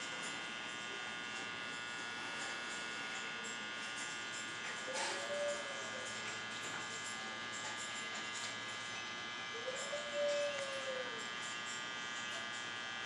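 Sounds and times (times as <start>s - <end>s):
steady electrical buzz: 0.0s - 13.0s
puppy whining: 9.6s - 11.3s.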